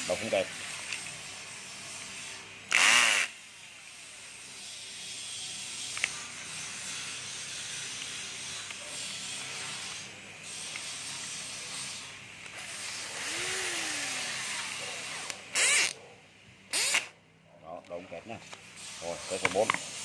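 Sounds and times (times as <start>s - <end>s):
electric screwdriver motor spinning: 2.7s - 3.5s, 4.6s - 16.0s, 16.7s - 17.2s.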